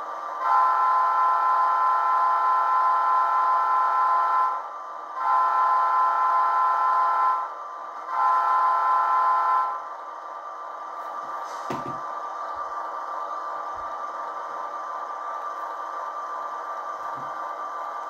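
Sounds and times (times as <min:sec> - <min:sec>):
model train horn blasts: 0:00.4 - 0:04.6, 0:05.2 - 0:07.5, 0:08.1 - 0:09.8.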